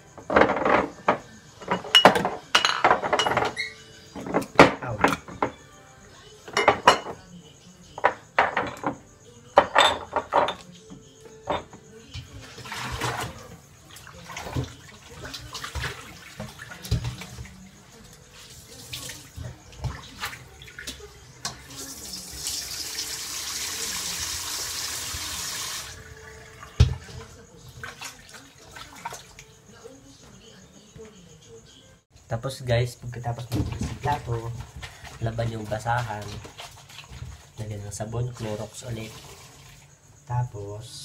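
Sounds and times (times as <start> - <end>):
dishes clinking in a sink: 0.2 - 5.6, 6.4 - 7.3, 7.9 - 23.2, 26.0 - 29.2, 33.2 - 37.7
faucet running: 21.7 - 26.9.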